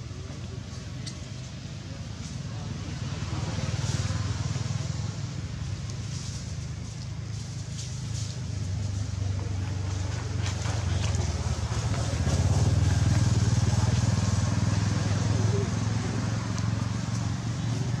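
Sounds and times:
engine humming: 0.0 - 18.0.

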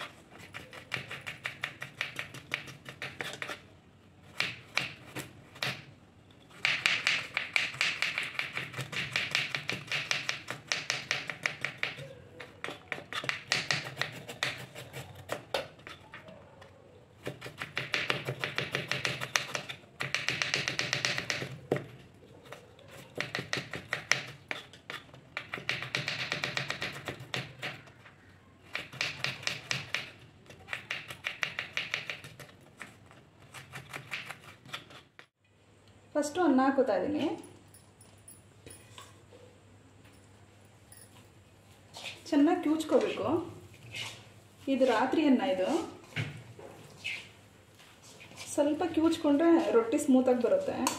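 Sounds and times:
knife chopping on wooden board: 6.6 - 12.0, 12.6 - 16.0, 17.2 - 22.0, 23.0 - 27.8, 28.7 - 35.3.

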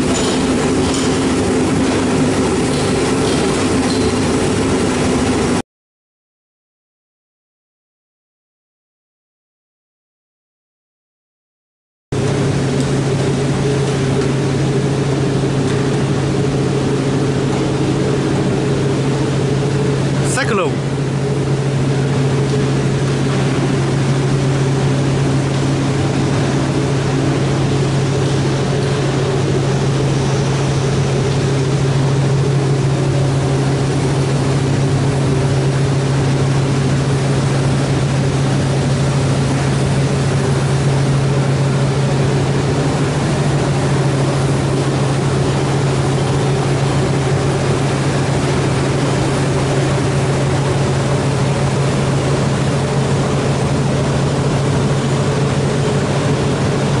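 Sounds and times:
low machinery hum: 0.0 - 5.6, 12.2 - 57.0
broad rushing noise: 12.2 - 57.0.

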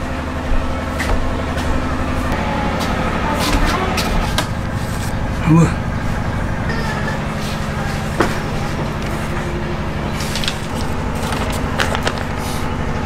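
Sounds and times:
steady low hum: 0.0 - 13.0
paper crackling: 8.0 - 13.0.

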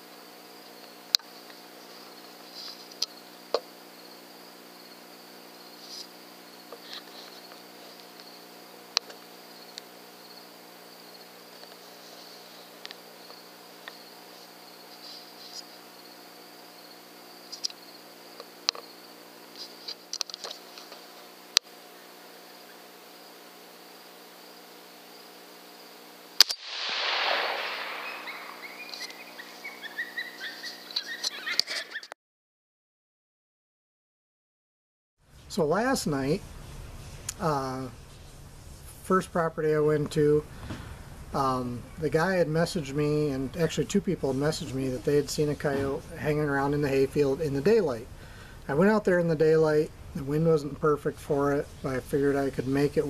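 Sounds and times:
crickets chirping: 0.0 - 32.0
rifle shot: 26.4 - 29.6
short high-pitched calls: 27.8 - 32.1.

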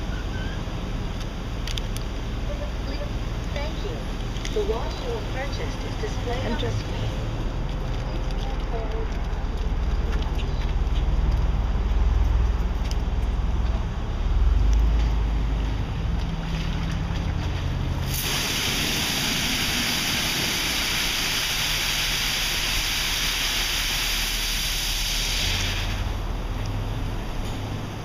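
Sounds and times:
water spray hissing: 18.0 - 26.2.

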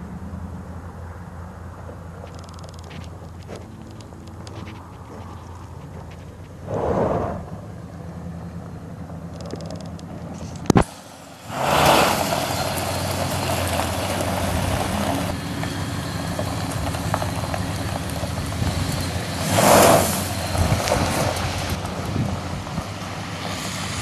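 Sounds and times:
gravel crunching under tyres: 0.0 - 24.0
pickup truck engine revving: 0.0 - 24.0
sharp click: 2.3 - 5.4, 9.3 - 10.9.

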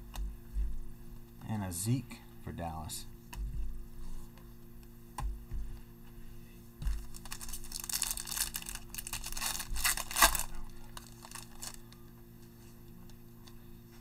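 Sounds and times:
foil wrapper crinkling: 6.9 - 11.9.

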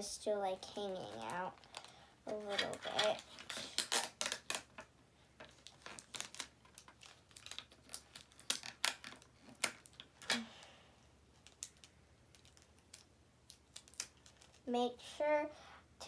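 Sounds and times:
cardboard tube clicking and crinkling: 0.8 - 10.6, 11.3 - 14.7.

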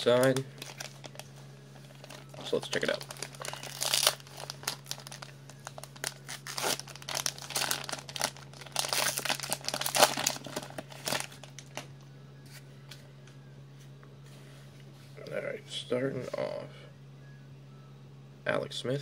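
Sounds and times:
steady low hum: 0.0 - 19.0
wrapper tearing and crinkling: 0.2 - 11.9.

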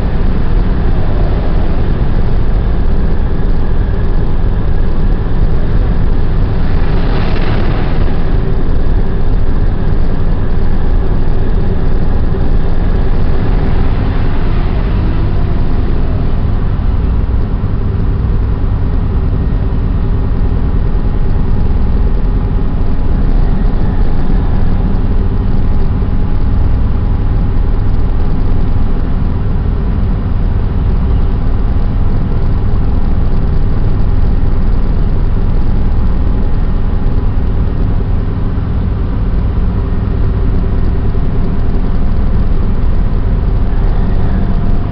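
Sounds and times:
faint continuous hum: 0.0 - 44.9
ship machinery rumble: 0.0 - 44.9
brief rush of noise: 6.4 - 10.1.

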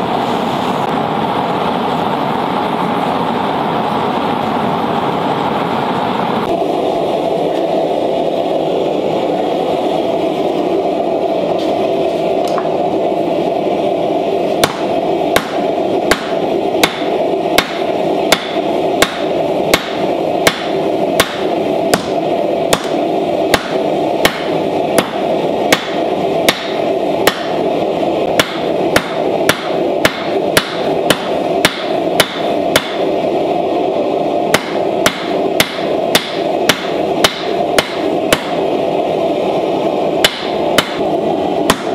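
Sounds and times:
gas forge burner rushing: 0.0 - 41.9
hammer striking on anvil: 14.6 - 27.6, 28.4 - 33.1, 34.5 - 38.6, 40.2 - 41.0, 41.7 - 41.9.

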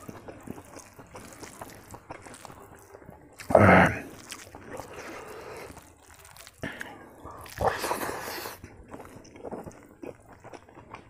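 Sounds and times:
hand squishing food: 0.0 - 11.0
wet eating clicks: 0.0 - 11.0
loud mouth sound: 3.4 - 4.5.

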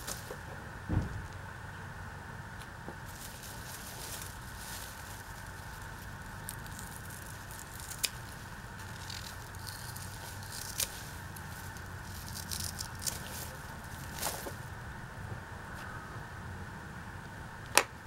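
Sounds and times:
rustling leafy stalks: 0.0 - 0.6, 3.0 - 14.8
garden shears snipping stalks: 3.1 - 14.6.

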